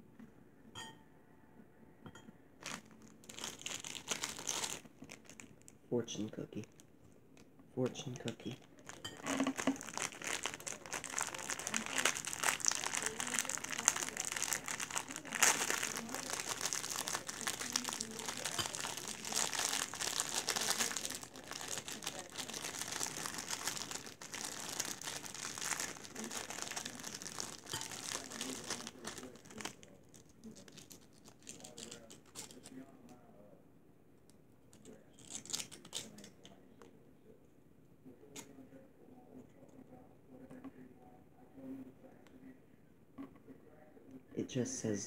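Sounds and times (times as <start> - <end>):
plastic wrapper crinkling: 2.6 - 5.8, 6.6 - 32.8, 34.8 - 36.3.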